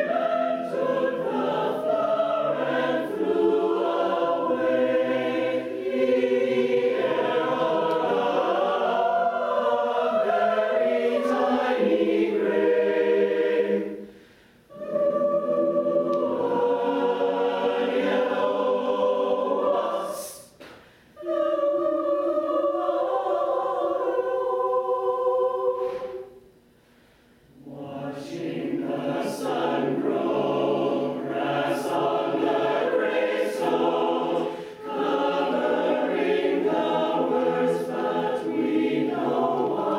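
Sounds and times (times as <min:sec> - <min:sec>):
mixed choir singing: 0:00.0 - 0:20.6, 0:21.2 - 0:26.5, 0:27.6 - 0:39.9.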